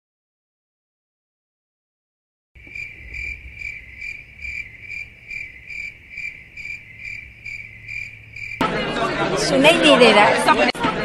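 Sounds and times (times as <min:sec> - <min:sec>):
cricket chirping: 0:02.6 - 0:08.6.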